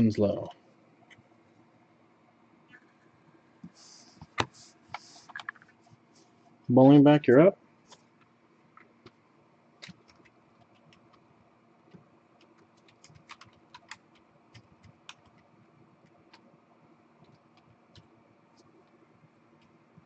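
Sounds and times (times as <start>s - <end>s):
faint steady hum: 0.0s - 20.0s
typing on computer keyboard: 9.8s - 11.2s, 12.4s - 16.5s.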